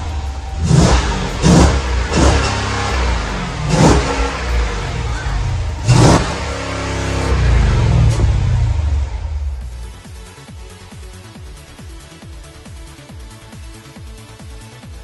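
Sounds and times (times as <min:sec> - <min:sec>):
car engine revving: 0:00.0 - 0:10.1
car engine idling: 0:00.0 - 0:13.6.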